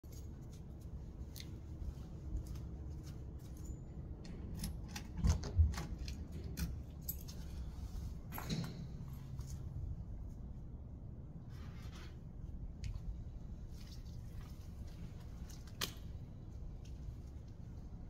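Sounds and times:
keys jangling in a lock: 6.5s - 7.6s.

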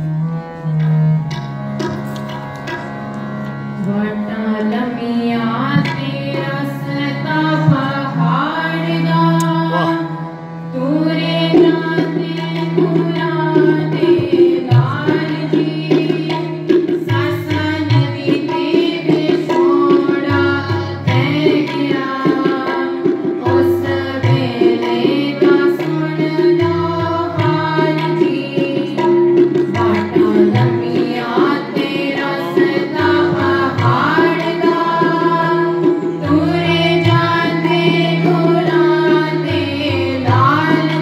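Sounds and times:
harmonium chords: 0.0s - 41.0s
tabla beat: 0.0s - 41.0s
girls singing: 17.0s - 28.9s, 29.8s - 41.0s.

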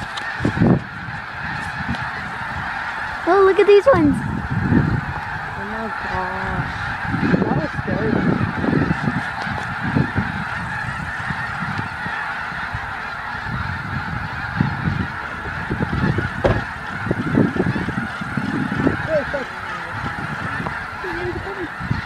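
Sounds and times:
flock of geese honking: 0.0s - 22.0s
low rumbles: 12.7s - 19.1s.

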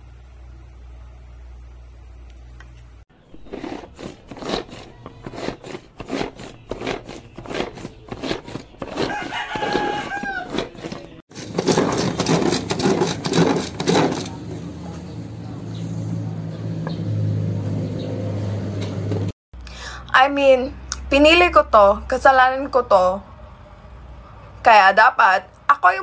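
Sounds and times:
food chopper blades clattering: 3.2s - 14.4s
rooster crowing: 8.9s - 11.0s.

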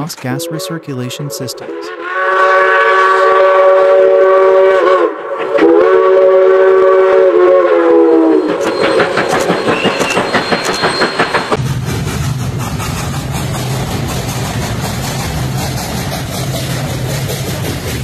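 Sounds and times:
steam whistle blasts: 0.4s - 11.2s
train clattering: 8.3s - 18.0s.

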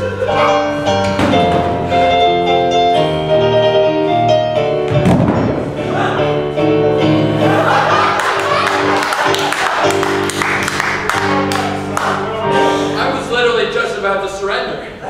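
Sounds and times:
electronic keyboard chords: 0.0s - 13.8s
thud: 4.9s - 5.7s.

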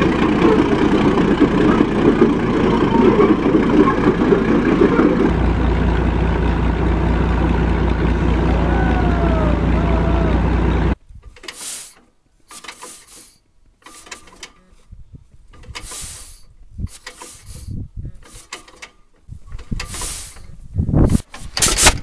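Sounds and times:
crawler tractor engine running: 0.0s - 11.0s
tractor flywheel hand cranking: 12.5s - 14.7s, 15.5s - 20.6s, 21.2s - 22.0s.

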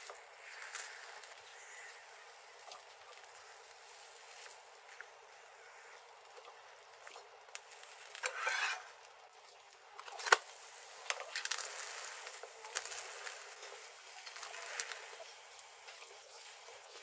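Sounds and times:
butter crackling and popping: 0.0s - 17.0s
metal spatula scraping frying pan: 8.2s - 9.0s.

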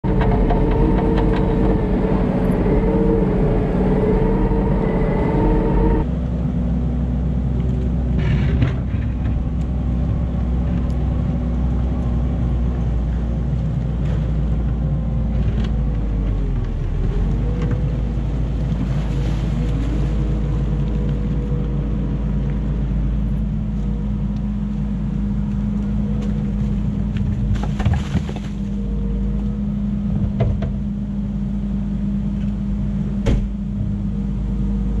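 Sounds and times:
loader diesel engine running: 0.0s - 35.0s.

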